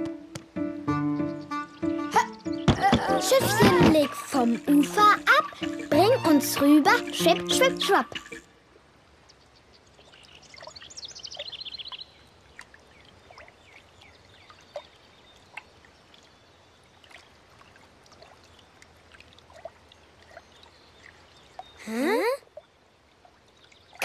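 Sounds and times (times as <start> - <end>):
bird chirping and trilling: 1.1 - 8.4, 9.2 - 16.8
water trickling and lapping: 2.1 - 24.0.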